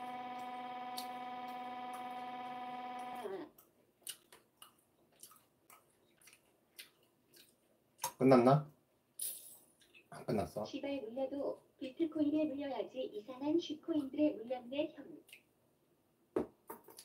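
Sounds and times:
electronic buzzing tone: 0.0 - 3.4.

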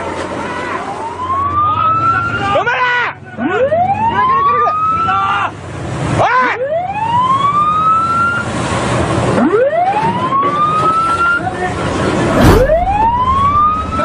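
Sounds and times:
wind: 0.0 - 14.0
ship's warning siren wailing: 0.4 - 5.5, 6.4 - 8.6, 9.3 - 14.0
ships grinding alongside: 11.8 - 14.0
rushing sea spray: 12.0 - 14.0
heavy thump: 12.2 - 14.0.

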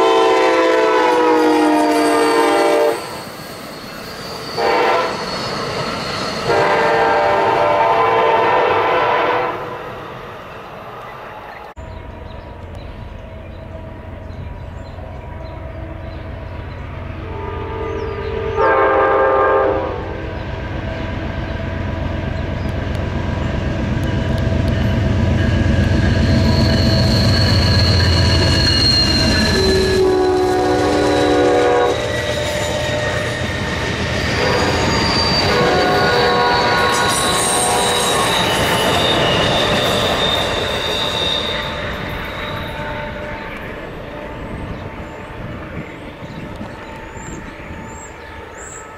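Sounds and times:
train air horn: 0.0 - 3.2, 4.6 - 5.3, 6.4 - 9.8, 17.2 - 20.4, 28.0 - 33.5, 34.3 - 44.7
high wheel squeal: 0.9 - 8.0, 23.3 - 48.9
diesel locomotive rumble: 11.8 - 48.8.

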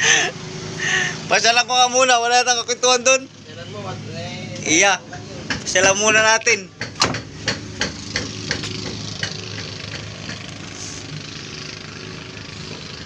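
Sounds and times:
sharp knocks: 5.4 - 6.2, 6.8 - 10.6.

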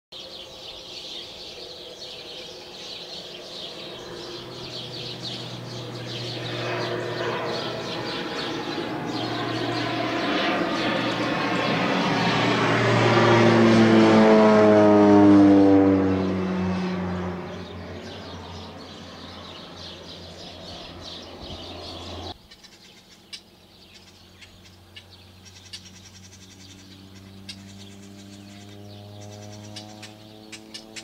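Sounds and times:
birds chirping: 0.1 - 14.5, 15.6 - 31.0
airplane engine drone: 0.2 - 31.0.

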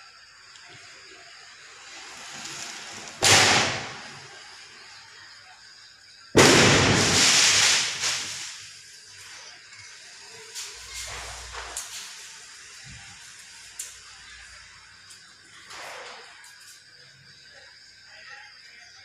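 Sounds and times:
firecrackers crackling: 0.8 - 5.0, 6.3 - 16.8
firecracker bang: 2.1 - 4.6, 6.3 - 8.7.

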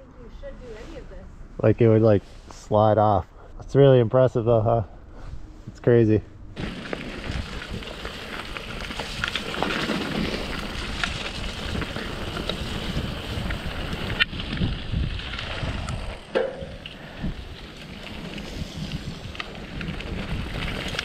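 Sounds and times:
bike rattling over bumps: 6.6 - 21.0
bike tyres over loose stones: 6.6 - 21.0
wind on microphone: 10.2 - 21.0.

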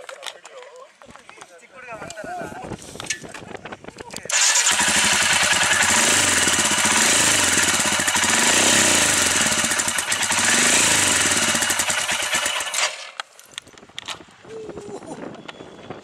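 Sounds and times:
motorcycle engine revving: 4.3 - 13.2.

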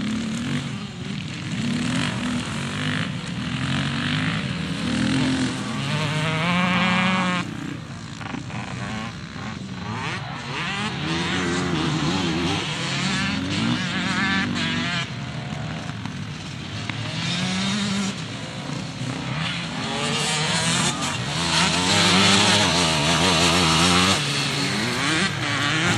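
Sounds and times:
dirt bike engine revving: 0.0 - 25.9.

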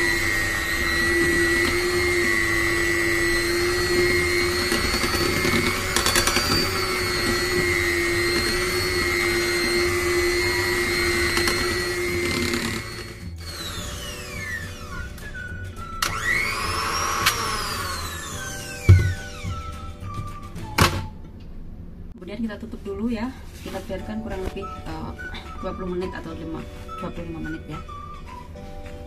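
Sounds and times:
electric mixer motor whine: 0.0 - 21.0.

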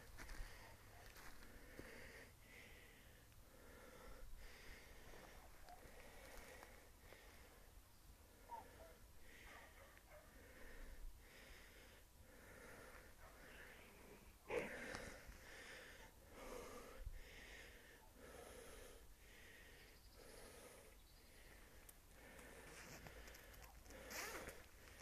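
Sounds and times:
person breathing heavily: 0.0 - 25.0.

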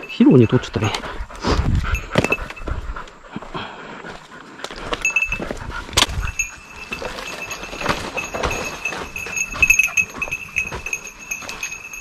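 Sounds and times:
dog footsteps crunching leaves: 4.8 - 12.0.

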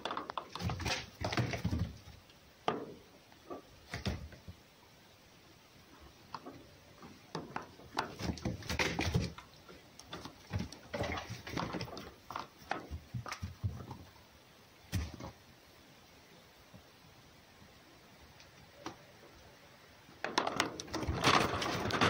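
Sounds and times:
animals scuffling: 0.0 - 4.6, 5.9 - 15.4, 20.4 - 22.0.

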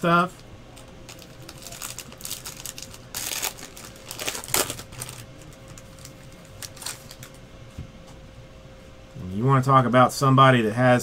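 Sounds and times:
faint steady hum: 0.0 - 11.0
plastic crinkling and rustling: 0.8 - 7.4.

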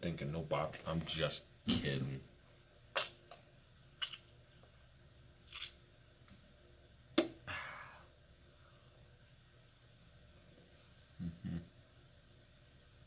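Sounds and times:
man spitting: 2.9 - 3.2.

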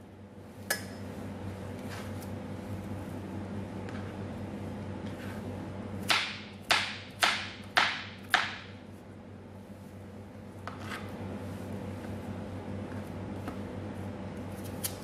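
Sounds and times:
knife chopping on plastic board: 6.0 - 8.7.

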